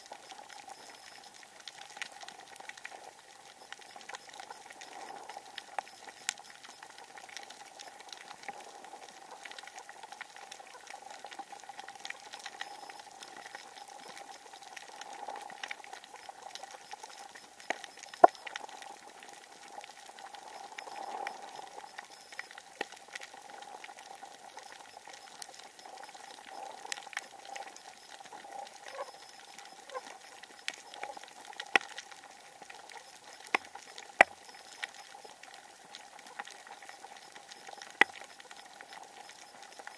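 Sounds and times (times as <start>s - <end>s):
crackle of small sharp clicks: 0.0s - 39.9s.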